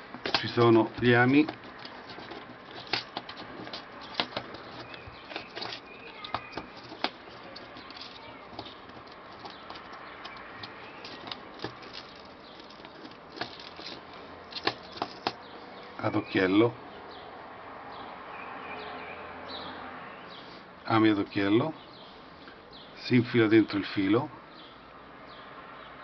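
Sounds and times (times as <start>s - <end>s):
plastic box clicks and rattles: 0.0s - 15.4s.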